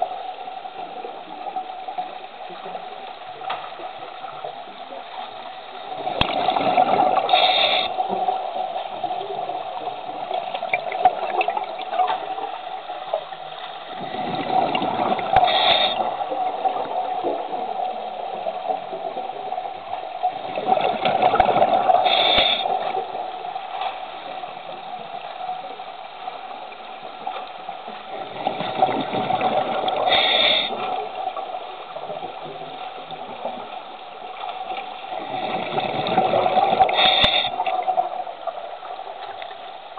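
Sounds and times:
exhaled bubbles gushing underwater: 0.0 - 39.9
regulator hiss: 7.2 - 10.1, 15.2 - 16.4, 21.9 - 23.2, 30.0 - 31.2, 36.8 - 37.9.

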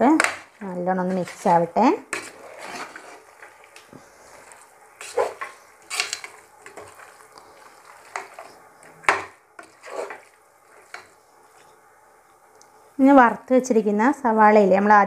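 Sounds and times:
spoon scraping metal pot: 1.0 - 3.5, 5.0 - 7.2, 7.8 - 11.1.

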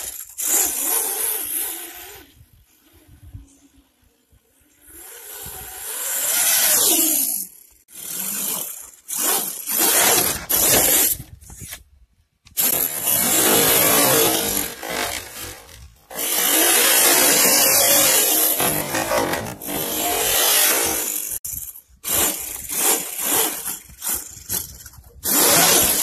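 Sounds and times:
electric motor whining: 12.6 - 21.3.

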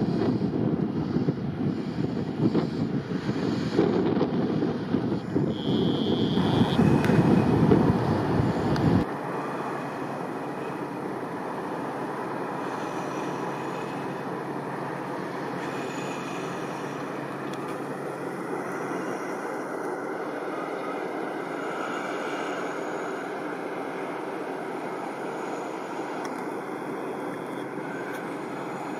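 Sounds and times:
wind buffeting microphone: 0.0 - 9.1
ship engines droning: 0.0 - 28.9.

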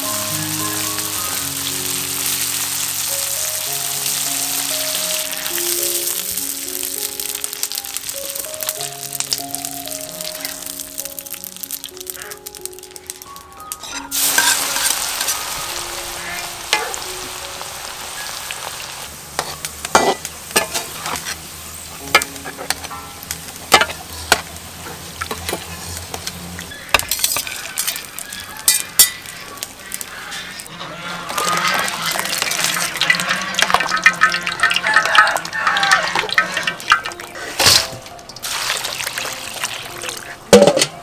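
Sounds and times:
garlic sizzling in hot oil: 0.0 - 40.4
metal strainer scraping wok: 13.8 - 15.5, 19.4 - 21.5, 30.3 - 38.8.

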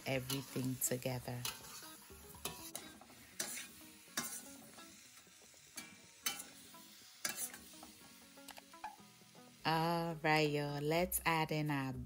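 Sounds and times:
metal spatula scraping a wok: 0.0 - 8.0
faint sizzle: 0.0 - 12.0.

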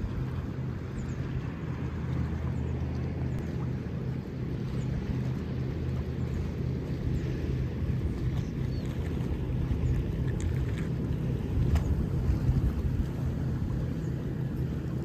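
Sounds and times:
low engine hum: 0.0 - 15.0
water noise: 0.0 - 15.0
wind noise: 9.1 - 14.0.

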